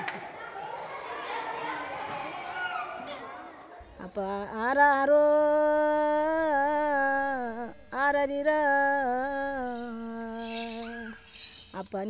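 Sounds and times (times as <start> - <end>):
person singing long notes: 4.0 - 11.2.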